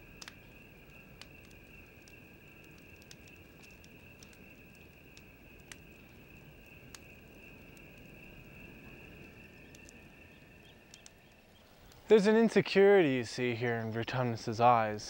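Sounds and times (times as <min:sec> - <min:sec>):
faint insect chirring: 0:00.0 - 0:15.0
sharp clicks: 0:10.9 - 0:12.0.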